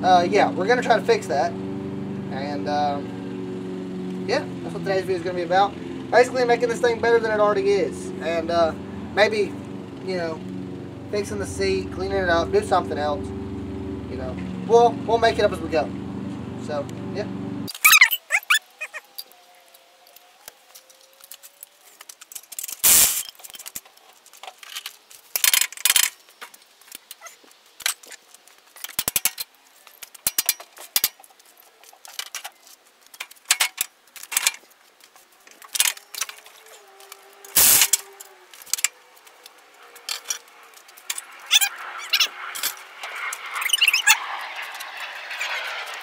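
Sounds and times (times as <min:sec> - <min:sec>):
metallic tool clinks and rattles: 0:22.1 - 0:23.9, 0:28.8 - 0:31.2, 0:40.0 - 0:42.8.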